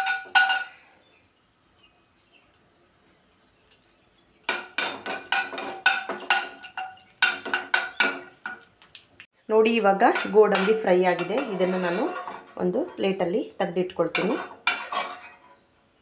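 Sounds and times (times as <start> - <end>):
nuts frying in oil: 3.8 - 15.0
spoon scraping a pan: 4.5 - 8.6, 10.0 - 13.2, 14.0 - 15.6.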